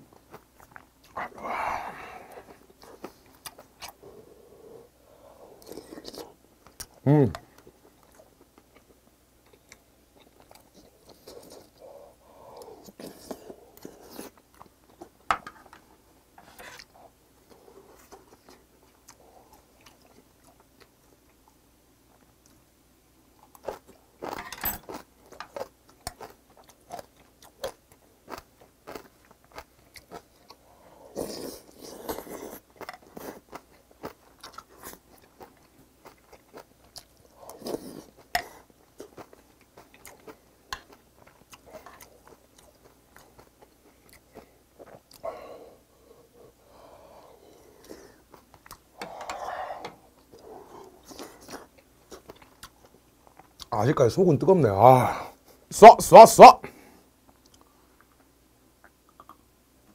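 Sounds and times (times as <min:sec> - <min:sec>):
slurping and chewing: 0:00.1 - 0:07.0, 0:08.0 - 0:15.1, 0:23.4 - 0:53.7.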